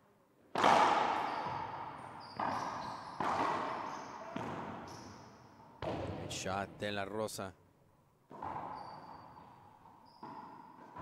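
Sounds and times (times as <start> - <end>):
racquetball cracking off walls: 0.5 - 4.8
shoes squeaking on hardwood floor: 1.2 - 5.3, 8.4 - 11.0.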